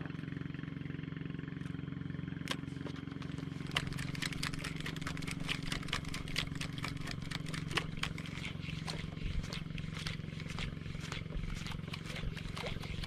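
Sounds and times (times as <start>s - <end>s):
boat engine running: 0.0s - 13.0s
sharp clicks and ticks: 3.6s - 9.0s.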